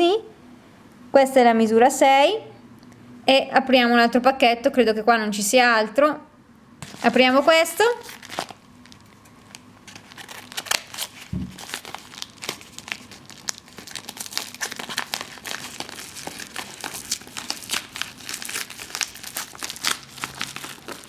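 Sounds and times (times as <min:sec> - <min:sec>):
packaging crinkling and rustling: 0:06.8 - 0:21.0
package being torn open: 0:07.9 - 0:21.0.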